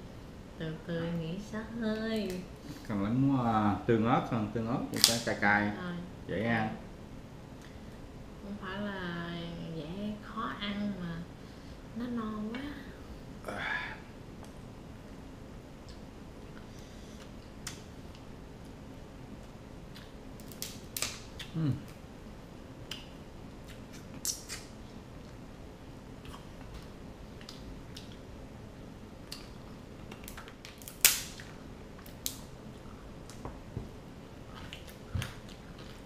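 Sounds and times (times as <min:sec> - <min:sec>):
crab shell cracking: 0:04.9 - 0:05.3, 0:20.0 - 0:21.6, 0:29.3 - 0:32.5.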